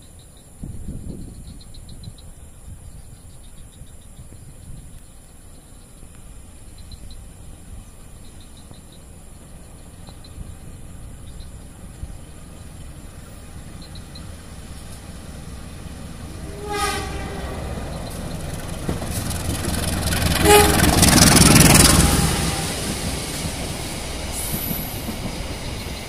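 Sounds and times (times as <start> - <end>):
train wheels on rails: 6.2 - 26.0
locomotive engine: 10.7 - 26.0
train horn blast: 16.2 - 18.2, 20.0 - 23.1.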